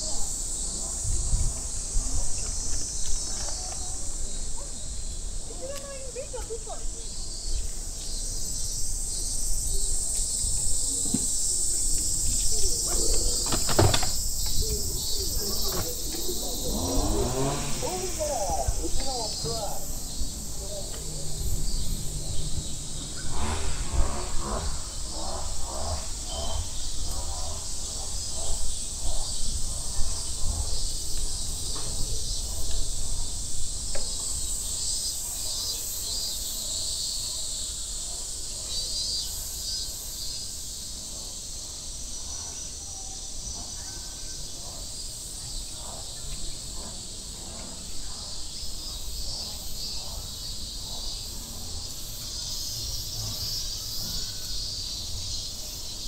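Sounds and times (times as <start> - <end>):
people's voices: 0.0 - 7.2, 9.7 - 22.4
cicadas buzzing: 0.0 - 56.0
low rumble: 14.7 - 29.9.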